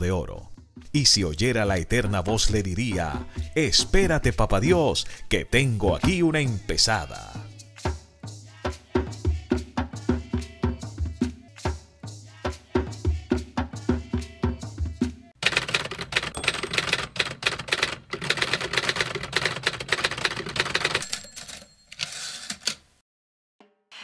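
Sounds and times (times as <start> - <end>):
percussive drum music: 0.0 - 4.8, 5.8 - 15.4
typewriter key clacks: 15.4 - 22.8.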